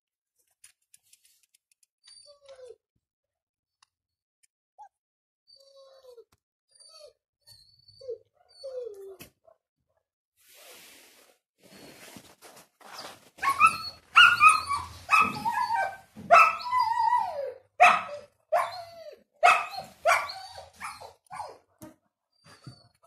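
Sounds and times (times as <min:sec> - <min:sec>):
puppies yelping and whining: 0:05.5 - 0:09.2, 0:13.0 - 0:21.6.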